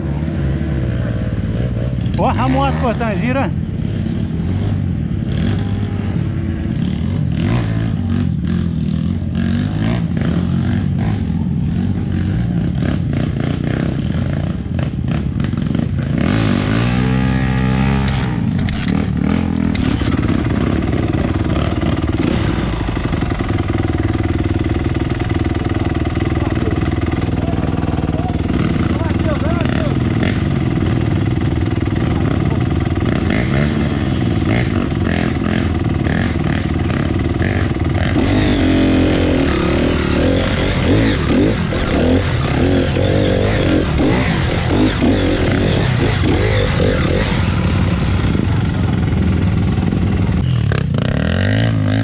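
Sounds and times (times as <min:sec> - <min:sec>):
dirt bike engine revving: 0:00.0 - 0:52.0
knocks and clatter from rough ground: 0:18.0 - 0:21.4.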